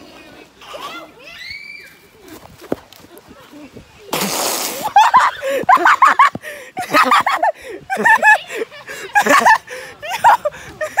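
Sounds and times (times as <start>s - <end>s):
water spat out: 4.0s - 5.3s
high-pitched laughter and shrieking: 4.8s - 11.0s.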